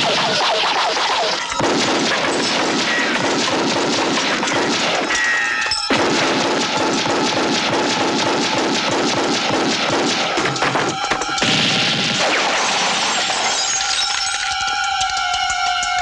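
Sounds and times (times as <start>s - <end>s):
rapid gunfire: 0.0s - 13.5s
big explosion blast: 5.9s - 8.9s, 11.4s - 13.4s.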